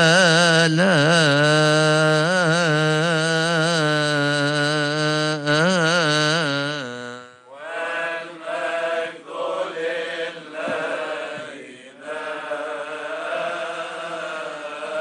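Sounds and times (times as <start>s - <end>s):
liturgical chanting: 7.5s - 15.0s.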